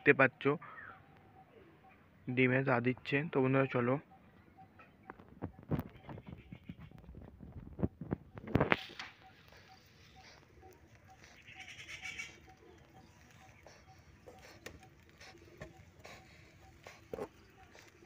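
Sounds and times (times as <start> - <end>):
pigeon grunting: 8.6 - 18.0.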